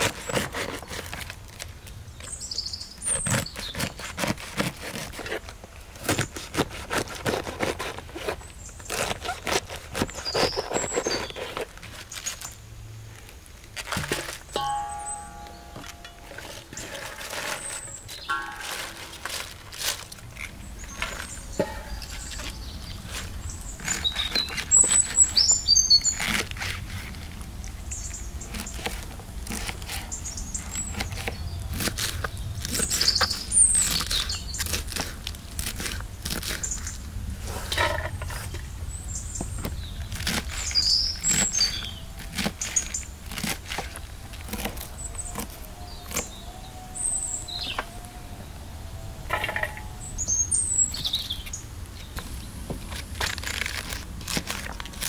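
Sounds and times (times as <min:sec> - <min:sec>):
birds chirping: 0:14.5 - 0:26.4, 0:37.7 - 0:43.2, 0:43.8 - 0:53.0.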